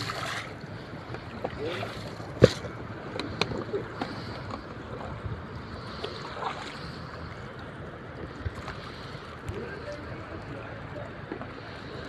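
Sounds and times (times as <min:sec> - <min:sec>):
water sloshing around legs: 0:00.0 - 0:02.8, 0:04.0 - 0:10.0.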